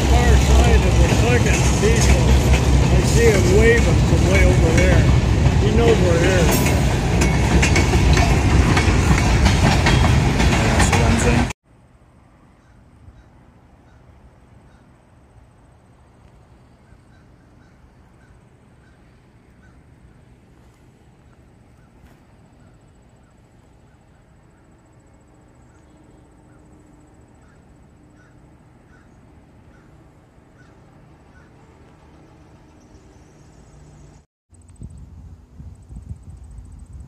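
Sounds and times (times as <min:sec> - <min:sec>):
train wheels rumbling on rail: 0:00.0 - 0:11.6.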